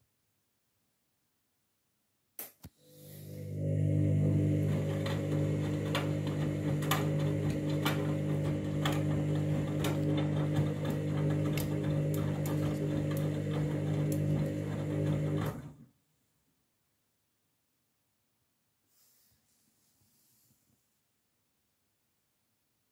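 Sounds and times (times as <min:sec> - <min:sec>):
washing machine motor hum: 0:02.8 - 0:15.8.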